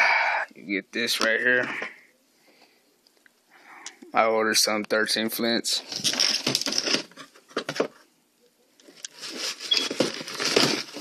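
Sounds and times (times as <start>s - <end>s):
paper wrapping crinkling: 5.9s - 7.4s, 8.8s - 11.0s
cardboard box opening: 9.1s - 11.0s.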